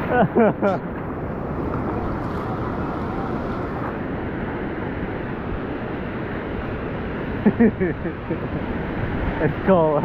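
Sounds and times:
ocean surf breaking: 0.0 - 7.5
wind rumble on microphone: 0.0 - 10.0.

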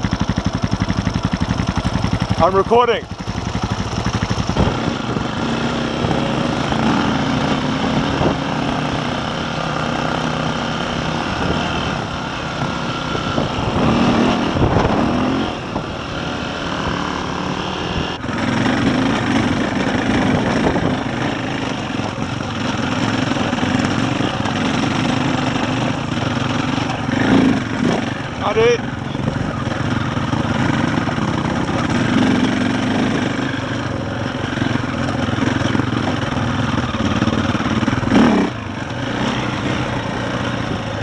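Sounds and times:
motorcycle engine: 0.0 - 41.0
wind on microphone: 4.4 - 6.9, 11.3 - 17.0, 19.4 - 22.2.

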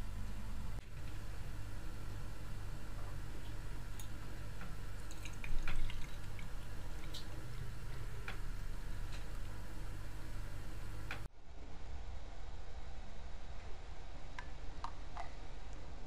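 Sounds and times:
tea trickling into glass mug: 5.0 - 8.0.

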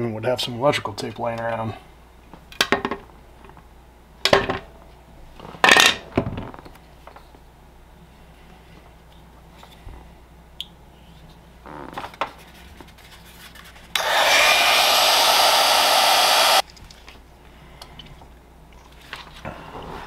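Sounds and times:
heat gun blowing: 14.0 - 16.6.

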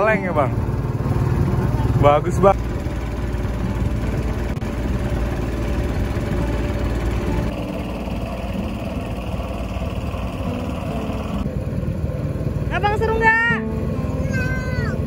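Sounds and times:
motorboat engine running: 0.0 - 15.0.

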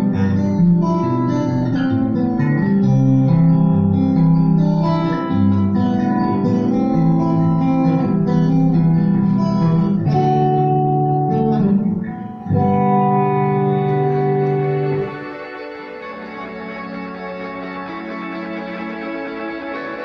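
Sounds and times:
fingerpicked acoustic guitar: 0.0 - 20.0.

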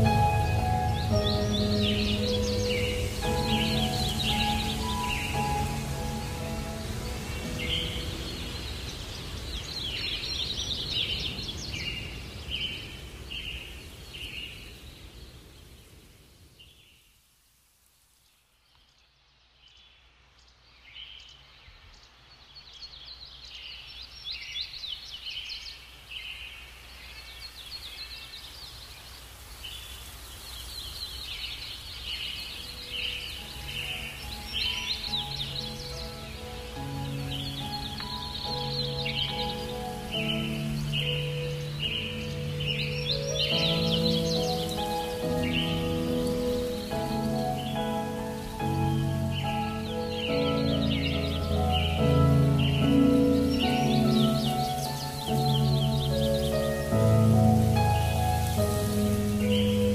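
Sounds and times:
birds chirping: 0.0 - 16.0, 18.7 - 59.9.

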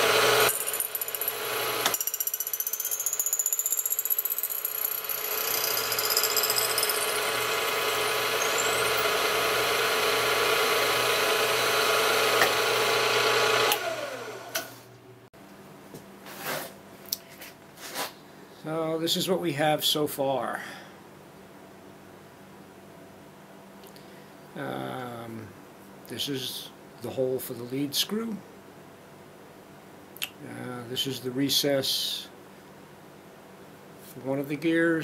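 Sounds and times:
end mill cutting metal: 0.0 - 3.3, 3.9 - 14.7
machine high whine: 4.6 - 14.7
motor spinning down: 4.6 - 14.8.

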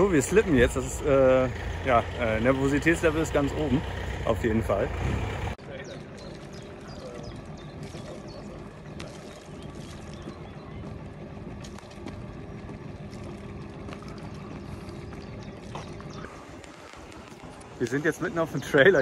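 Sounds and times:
machine drone: 0.0 - 19.0
water pouring and trickling: 6.0 - 19.0.

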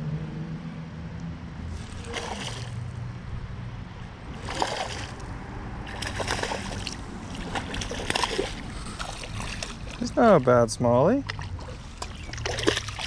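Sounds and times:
fish splashing at water surface: 1.7 - 3.0, 4.3 - 10.5, 11.2 - 13.0.

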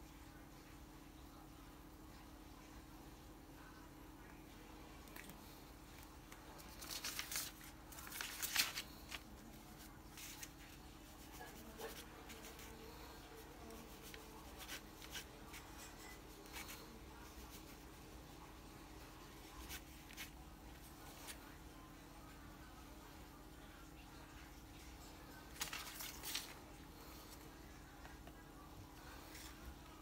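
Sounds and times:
rustling handling noise: 5.0 - 21.6, 24.8 - 30.0.

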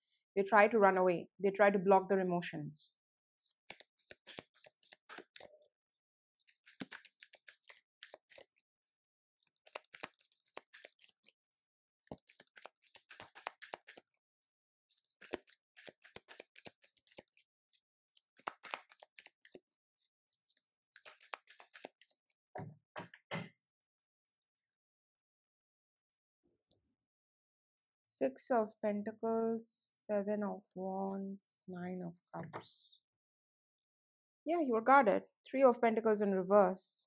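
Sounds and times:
cards shuffling: 3.4 - 5.5, 6.4 - 8.6, 9.4 - 11.3, 12.0 - 14.2, 14.9 - 17.4, 18.1 - 19.6, 20.3 - 22.2.

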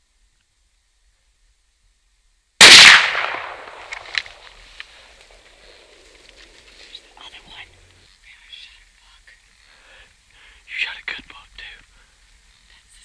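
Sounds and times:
rifle shot: 2.6 - 4.6.

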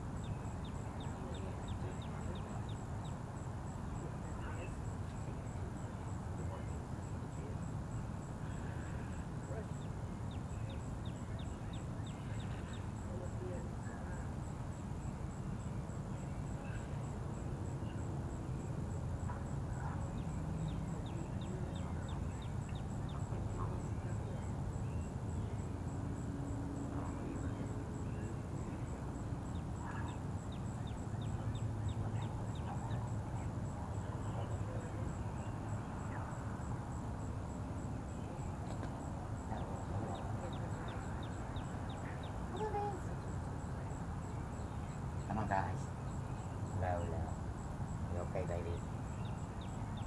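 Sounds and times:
birds calling: 44.2 - 50.0.

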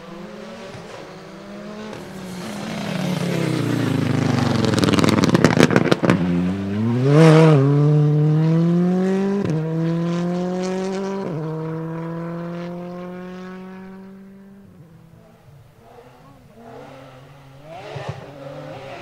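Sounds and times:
car accelerating hard: 0.0 - 19.0
engine crackles and pops: 1.9 - 6.7.

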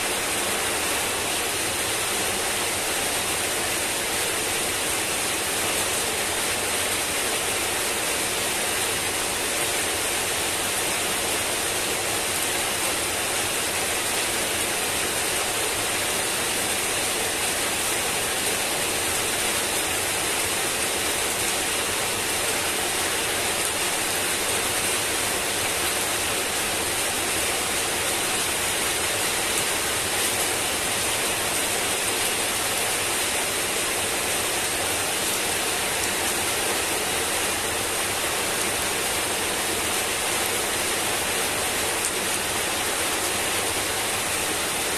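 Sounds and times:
heavy rain on paving and leaves: 0.0 - 44.9.

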